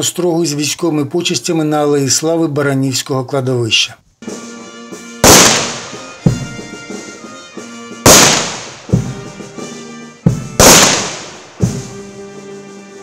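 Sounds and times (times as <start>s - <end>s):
steady music: 4.2s - 13.0s
rifle volleys: 5.2s - 6.0s, 8.1s - 8.8s, 10.6s - 11.4s.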